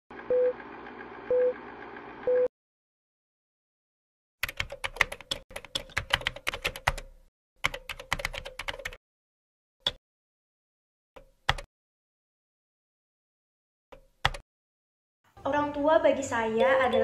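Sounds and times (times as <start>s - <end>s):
keyboard typing: 4.4s - 9.0s, 11.2s - 11.7s, 14.0s - 14.4s.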